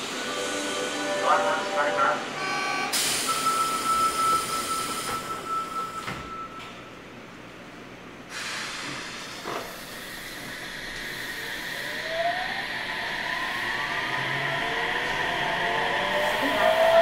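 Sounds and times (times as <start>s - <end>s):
steady high tone: 0.0s - 6.4s
train running noise: 0.0s - 6.4s, 8.5s - 17.0s.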